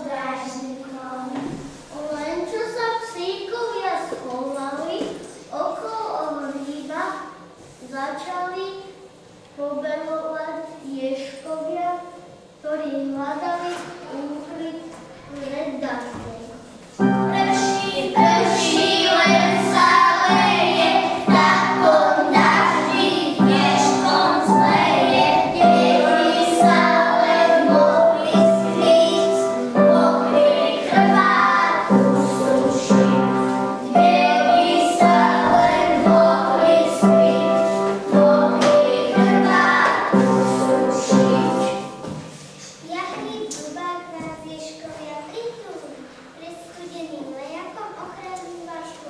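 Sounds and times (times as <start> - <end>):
children singing: 17.0 - 42.2
instrumental accompaniment: 17.0 - 42.6.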